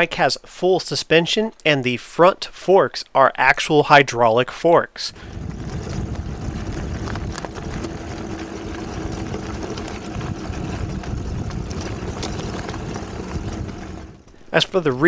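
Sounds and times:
stones ticking and rattling: 0:05.2 - 0:14.3
bike tires crunching over gravel: 0:05.2 - 0:15.0.

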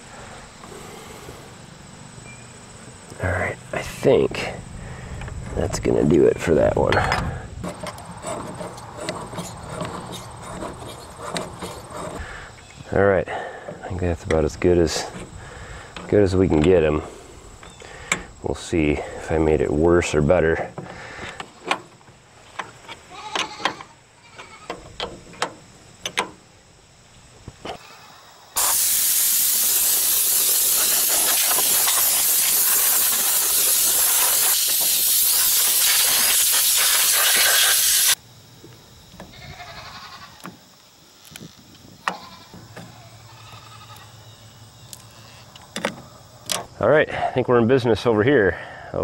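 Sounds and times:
compressed air blow gun hissing: 0:00.0 - 0:01.9, 0:03.8 - 0:05.5, 0:06.9 - 0:14.0, 0:14.9 - 0:16.1, 0:16.9 - 0:18.4, 0:28.6 - 0:38.2.

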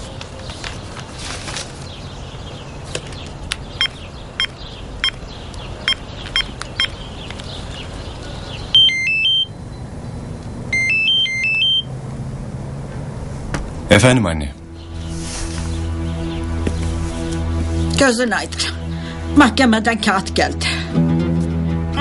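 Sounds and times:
phone keypad beeps: 0:03.8 - 0:05.2, 0:05.9 - 0:07.0, 0:08.8 - 0:09.5, 0:10.7 - 0:11.9
mobile phone ringtone: 0:08.8 - 0:09.5, 0:10.7 - 0:11.9.

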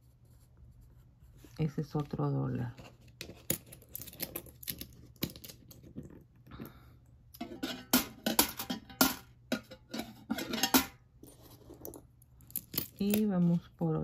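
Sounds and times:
coins clicking and clinking: 0:03.5 - 0:05.8.

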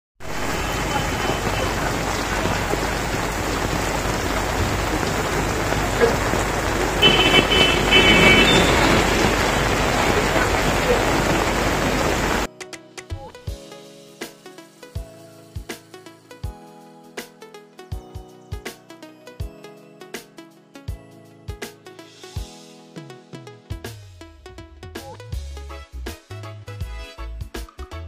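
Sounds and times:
heavy rain on pavement: 0:00.2 - 0:12.5.

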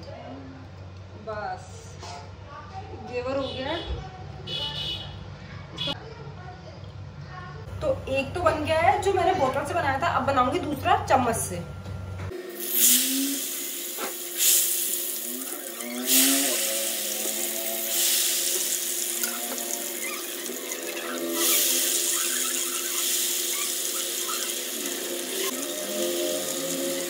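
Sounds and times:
batter sizzling in hot ghee: 0:12.6 - 0:27.0.

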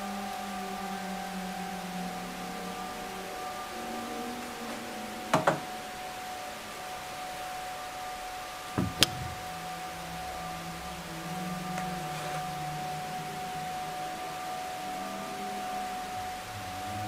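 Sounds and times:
electronic drone tone: 0:08.6 - 0:17.0
low hum: 0:08.7 - 0:14.2
sharp knocks: 0:08.8 - 0:09.4.

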